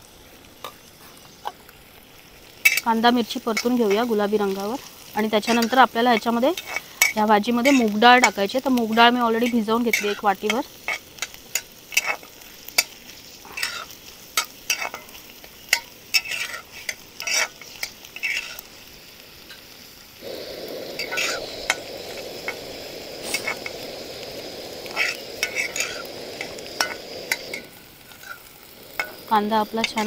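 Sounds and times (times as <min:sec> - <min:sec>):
onions sizzling in oil: 0:00.0 - 0:30.0
steady loud hiss: 0:00.0 - 0:30.0
spatula scraping a pan: 0:02.6 - 0:18.8, 0:21.0 - 0:22.6, 0:23.2 - 0:23.8, 0:24.8 - 0:30.0.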